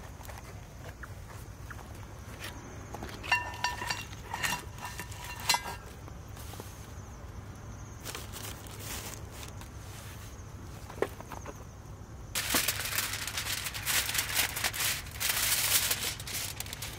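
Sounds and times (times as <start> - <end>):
skillet clanking against metal stand: 3.2 - 5.9.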